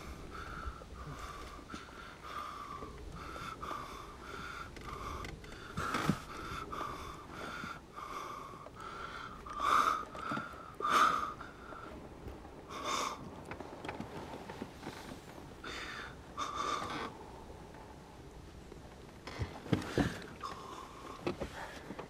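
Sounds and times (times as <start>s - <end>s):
man breathing heavily: 0.0s - 13.4s, 14.8s - 18.1s.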